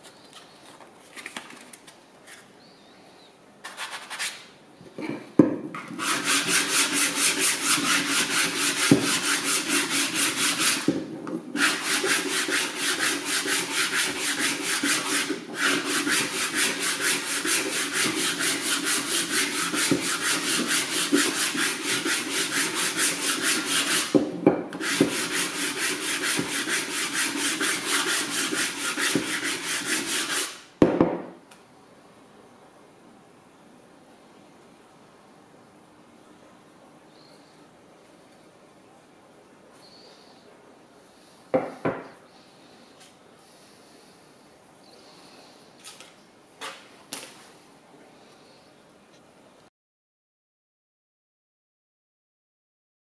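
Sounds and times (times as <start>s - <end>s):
sanding block knocking: 5.8s - 30.6s
sandpaper scraping on wood: 5.9s - 24.2s, 24.8s - 30.7s.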